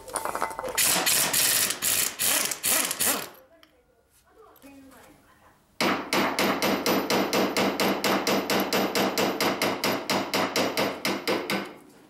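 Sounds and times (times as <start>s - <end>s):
pneumatic impact wrench hammering: 0.8s - 3.4s, 5.9s - 11.7s.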